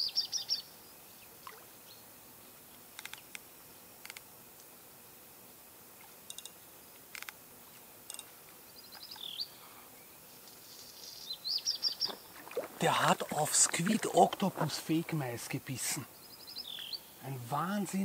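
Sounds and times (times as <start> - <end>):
bird calling: 10.7 - 18.0.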